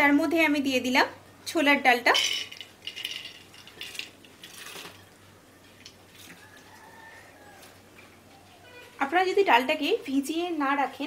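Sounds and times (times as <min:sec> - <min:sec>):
dried lentils rattling into pot: 0:02.1 - 0:05.0.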